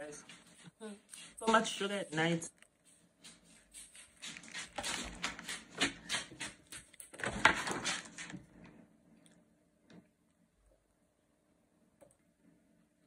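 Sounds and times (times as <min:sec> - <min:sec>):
foil wrapper crinkling: 0:03.9 - 0:08.4.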